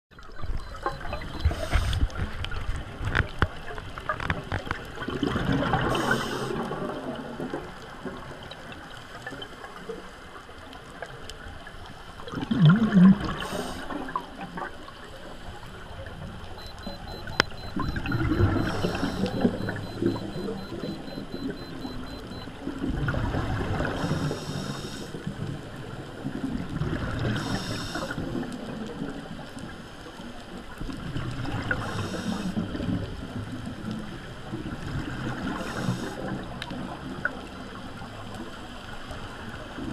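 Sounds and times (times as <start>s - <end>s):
exhaled bubbles burbling: 0.4s - 2.2s, 4.2s - 8.4s, 12.2s - 14.7s, 16.0s - 24.4s
regulator inhalation hiss: 6.0s - 6.5s, 24.1s - 25.1s, 27.4s - 28.2s.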